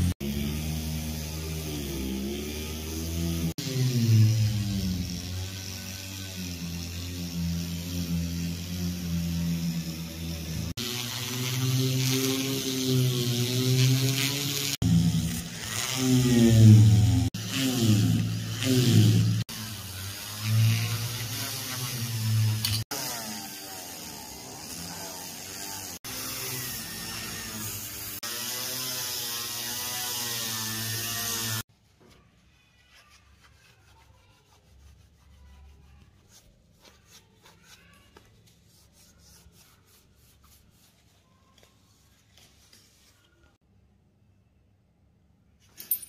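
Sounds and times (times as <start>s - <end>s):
rotary tool whine: 0.0s - 31.6s.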